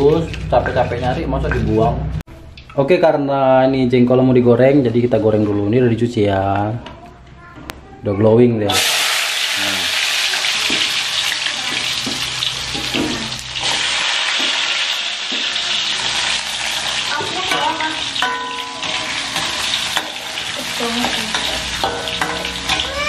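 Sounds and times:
food sizzling in hot oil: 8.7 - 23.0
spatula stirring in wok: 10.7 - 23.0.

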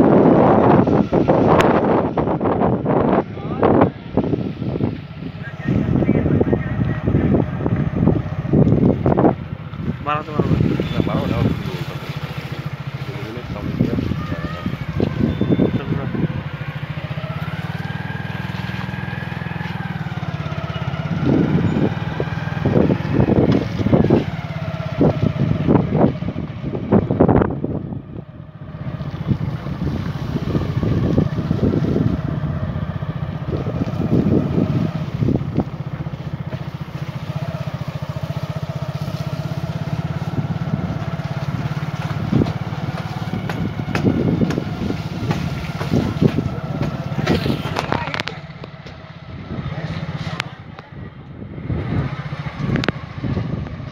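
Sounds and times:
loud irregular surges: 0.0 - 26.1
vehicle engine low hum: 0.0 - 53.9.

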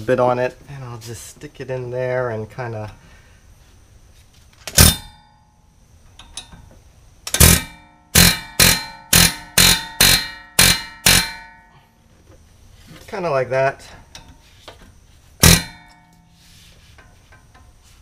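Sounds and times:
metal-on-metal strikes ringing: 4.8 - 5.5, 7.3 - 11.8, 15.4 - 16.4.

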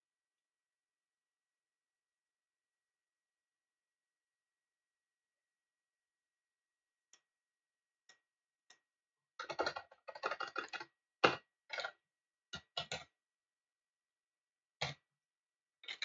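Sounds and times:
typing on computer keyboard: 9.4 - 11.9.

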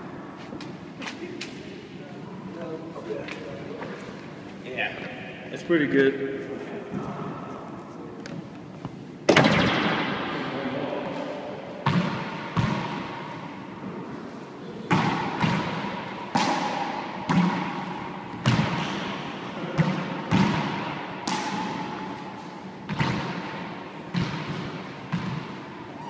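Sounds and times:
handball smacks with echo: 11.1 - 13.3, 14.8 - 25.8.

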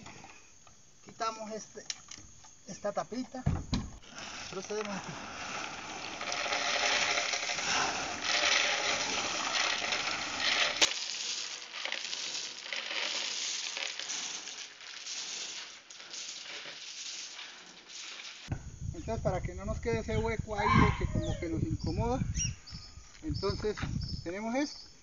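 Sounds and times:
beans rattling down a chute: 4.0 - 18.5.

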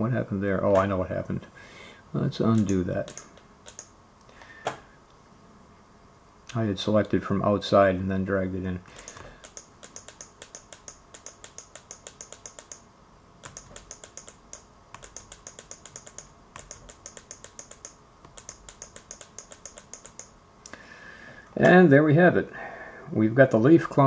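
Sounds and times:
computer mouse button clicking: 2.6 - 3.9, 9.0 - 12.8, 13.4 - 20.3.

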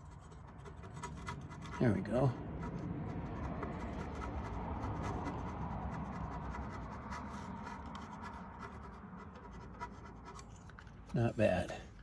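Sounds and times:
scraper blade scratching metal: 0.0 - 11.3.

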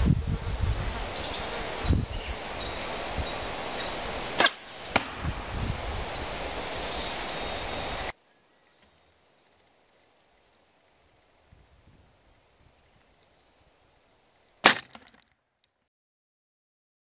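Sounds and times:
wind on microphone: 0.0 - 8.1, 11.4 - 12.9
bowstring snapping: 4.4 - 5.2
fainter crack: 14.6 - 15.4.

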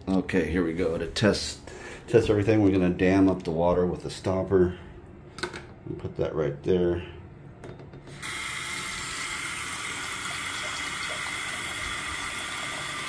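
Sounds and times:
faucet water running into sink: 8.1 - 13.0.

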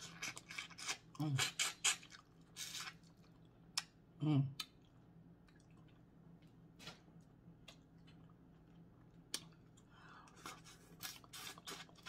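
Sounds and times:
wet eating and peeling sounds: 0.0 - 3.9, 7.6 - 12.0
low steady hum: 0.0 - 12.0.

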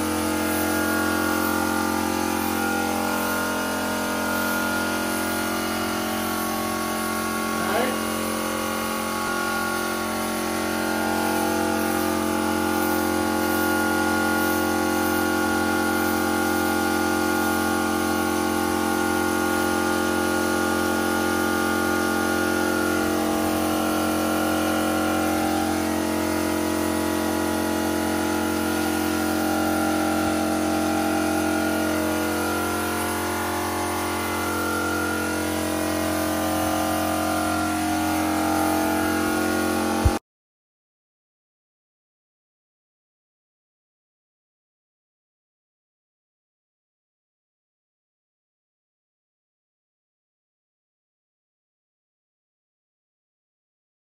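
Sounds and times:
air compressor motor running: 0.0 - 40.2
spray gun hissing: 0.1 - 17.6, 22.6 - 40.2.

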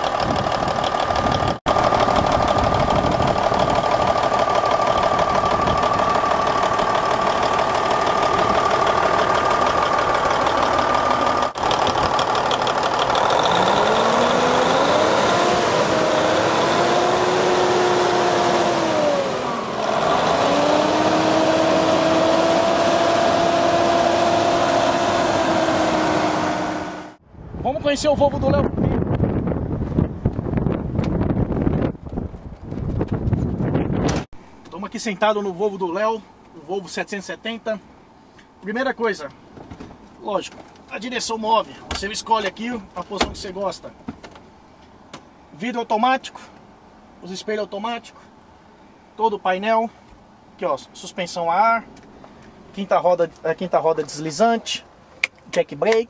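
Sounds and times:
diesel engine idling: 0.0 - 22.4
engine whine rising in pitch: 0.0 - 27.5.

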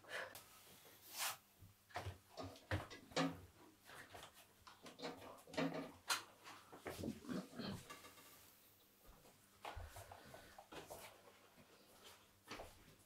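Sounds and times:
kitchen handling clicks and knocks: 2.4 - 3.5, 4.8 - 6.3.

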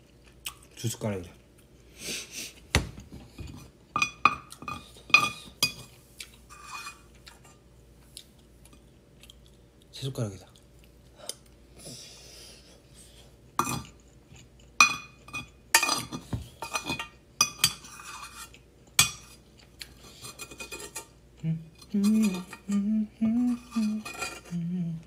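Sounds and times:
person humming: 21.4 - 25.0.

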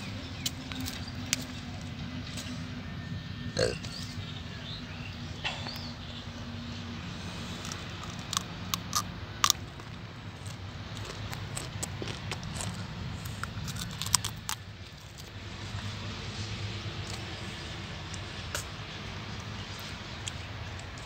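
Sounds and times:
cauliflower crunching: 7.4 - 15.4.

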